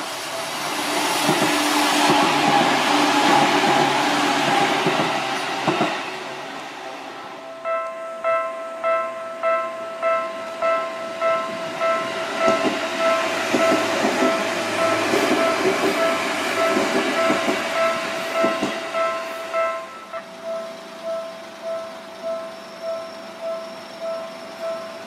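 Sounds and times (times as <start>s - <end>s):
train wheels clacking: 0.0s - 6.6s, 7.7s - 25.0s
electric train passing: 0.0s - 25.0s
ringing warning bell: 7.4s - 25.0s.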